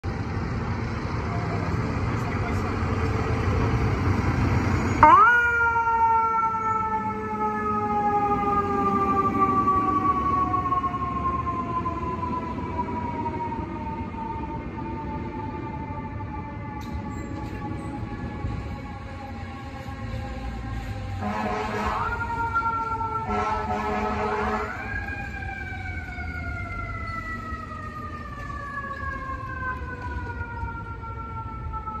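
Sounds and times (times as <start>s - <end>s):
truck engine rumble: 0.0s - 32.0s
mechanical siren wailing: 4.8s - 32.0s
horn blast: 21.2s - 22.1s, 23.3s - 24.8s.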